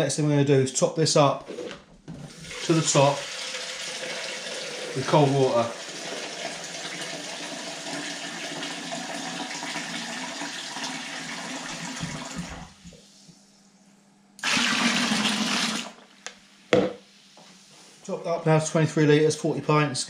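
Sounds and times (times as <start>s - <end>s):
water poured into plastic bucket: 2.3s - 12.7s, 14.4s - 16.0s
water running from a tap: 2.3s - 12.7s.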